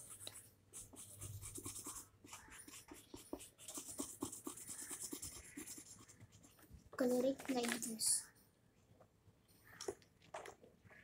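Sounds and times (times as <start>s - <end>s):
felt-tip pen scratching on paper: 0.0s - 6.6s.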